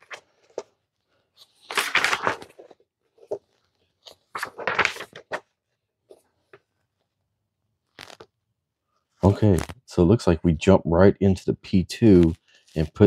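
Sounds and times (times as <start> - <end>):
paper pages rustling: 0.0 - 6.7, 7.9 - 8.3.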